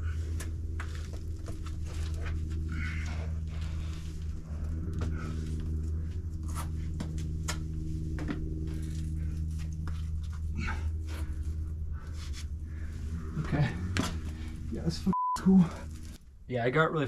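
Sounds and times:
steady low hum: 0:00.0 - 0:17.0
person breathing heavily: 0:01.8 - 0:07.0, 0:08.6 - 0:14.9.

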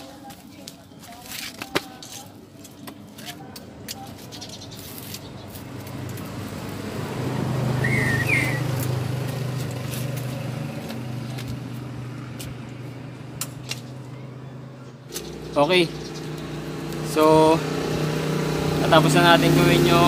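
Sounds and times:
vehicle engine passing: 0:04.7 - 0:20.0.

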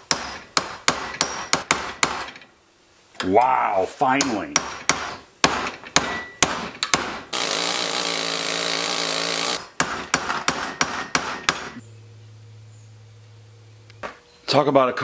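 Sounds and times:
hammer striking a punch: 0:00.1 - 0:02.4, 0:04.2 - 0:07.3, 0:09.6 - 0:11.8
pneumatic air hammer: 0:04.7 - 0:11.8
faint low hum: 0:11.6 - 0:15.0.

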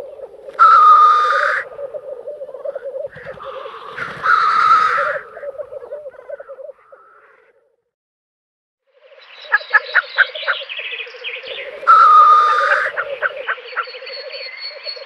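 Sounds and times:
grouse bubbling cooing call: 0:00.0 - 0:07.6, 0:11.3 - 0:15.0.

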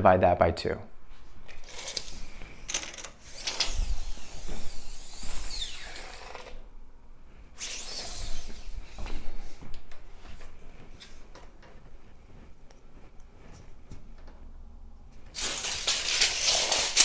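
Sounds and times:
tape measure blade rattling: 0:01.5 - 0:06.6, 0:15.3 - 0:17.0.

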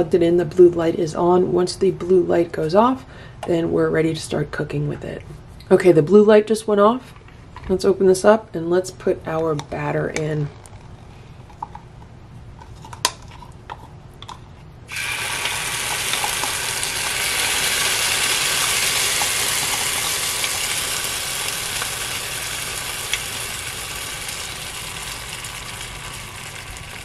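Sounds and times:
batter sizzling on hot griddle: 0:14.9 - 0:27.0.

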